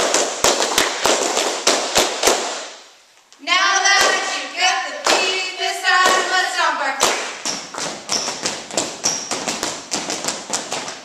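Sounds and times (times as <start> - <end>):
sharp claps: 0.0 - 2.8, 3.9 - 4.4, 5.0 - 5.4, 6.0 - 6.4, 7.0 - 11.0
cheer chant shouted: 3.4 - 7.0
short high squeaks: 7.5 - 9.5.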